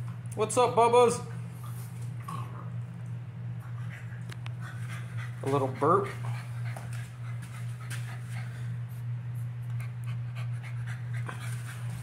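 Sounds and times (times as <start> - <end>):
puppy panting: 3.6 - 8.8, 9.7 - 12.0.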